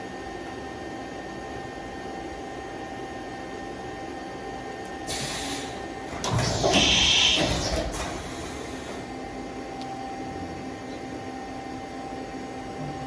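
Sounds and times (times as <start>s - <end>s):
machine humming: 0.0s - 13.0s.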